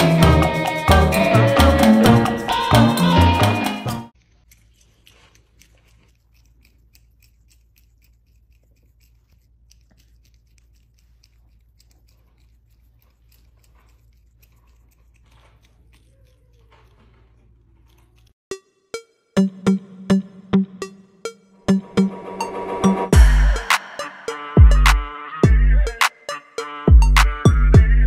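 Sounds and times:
porcupine clicking and crunching: 0:04.2 - 0:18.4.

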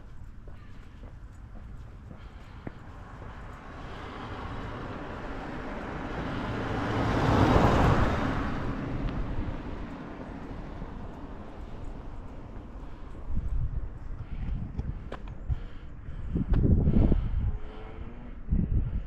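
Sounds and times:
car passing by: 0:02.3 - 0:13.1, 0:16.8 - 0:18.9.

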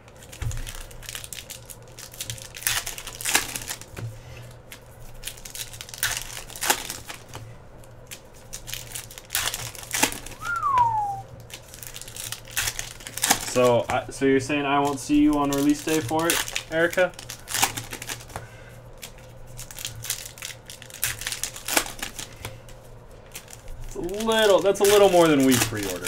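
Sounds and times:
foil wrappers crinkling and tearing: 0:00.0 - 0:26.0
short falling tone: 0:10.4 - 0:11.2.

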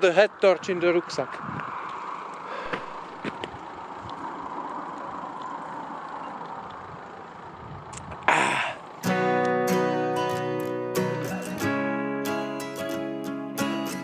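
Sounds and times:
vehicle passing road noise: 0:00.0 - 0:12.9
strummed acoustic guitar music: 0:09.0 - 0:14.0.

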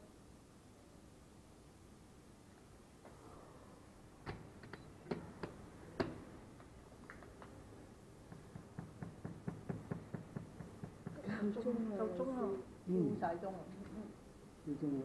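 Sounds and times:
soft knocks and clicks: 0:04.2 - 0:07.6.

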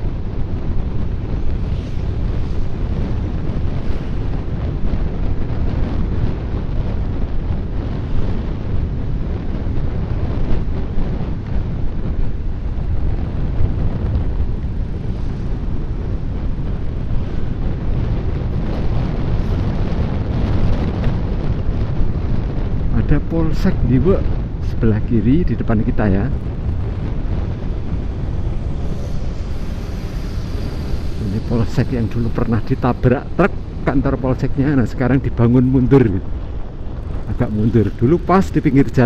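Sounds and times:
road and engine noise: 0:00.0 - 0:39.0
wind buffeting microphone: 0:00.0 - 0:39.0.

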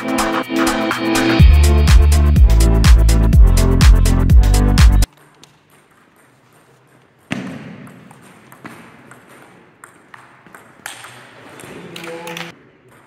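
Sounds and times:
table tennis ball clicking: 0:05.1 - 0:13.0.

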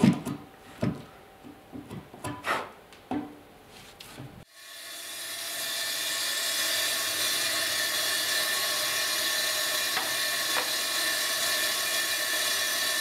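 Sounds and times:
table saw whine: 0:04.4 - 0:13.0.

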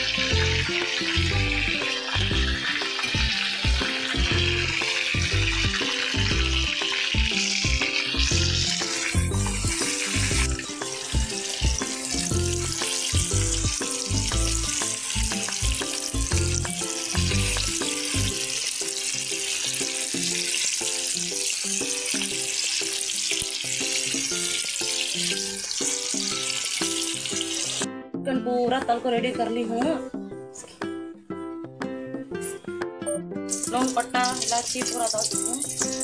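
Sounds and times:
background music with bass: 0:00.0 - 0:18.4
chicken deep-frying in oil: 0:00.0 - 0:27.9, 0:33.5 - 0:36.0.

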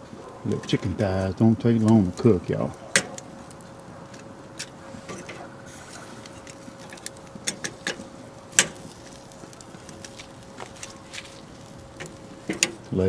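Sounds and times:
faint steady hum: 0:00.0 - 0:13.0
metal tongs clicking on grate: 0:01.7 - 0:02.0, 0:06.2 - 0:08.0, 0:12.0 - 0:12.8.

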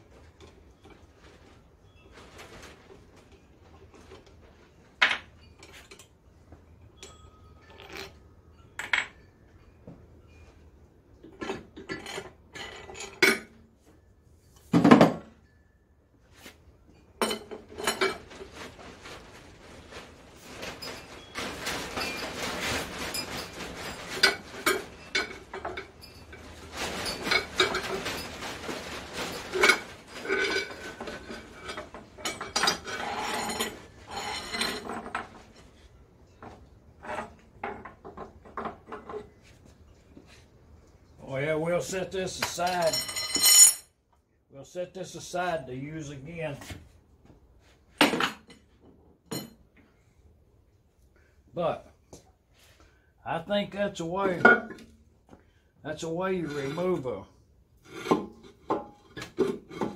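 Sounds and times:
metal parts clinking and clanking: 0:07.0 - 0:09.3, 0:11.1 - 0:13.6, 0:17.1 - 0:39.3, 0:42.3 - 0:43.9.

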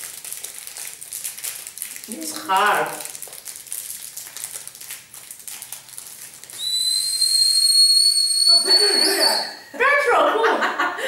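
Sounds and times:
wrapper rustling: 0:00.0 - 0:07.8
high-pitched candy whistle: 0:06.6 - 0:09.8.

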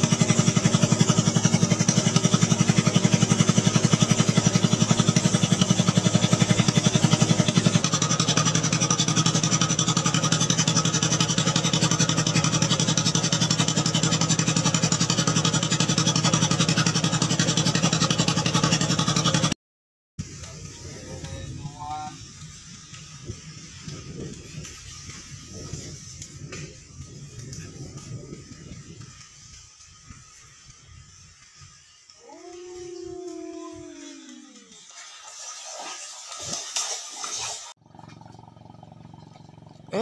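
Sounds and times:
boat engine puttering: 0:00.0 - 0:19.6, 0:37.8 - 0:40.0.

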